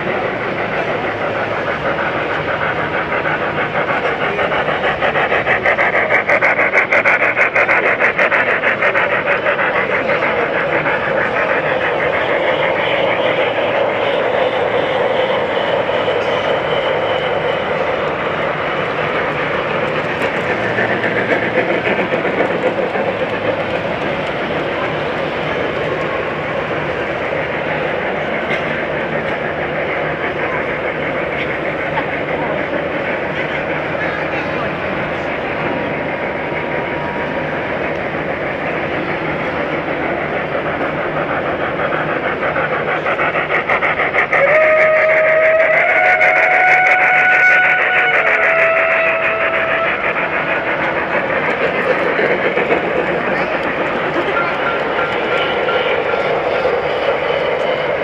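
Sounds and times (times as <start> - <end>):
model steam locomotive chuffing: 0.0 - 58.0
steady background din: 0.0 - 58.0.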